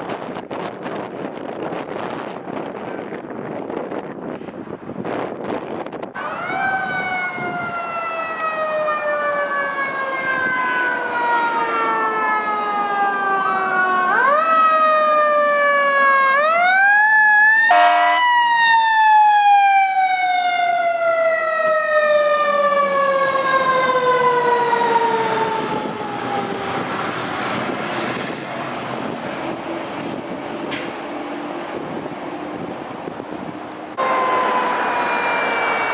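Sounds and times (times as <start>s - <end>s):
fire engine siren wailing: 6.1s - 35.9s
horn blast: 17.7s - 18.2s, 34.0s - 35.9s.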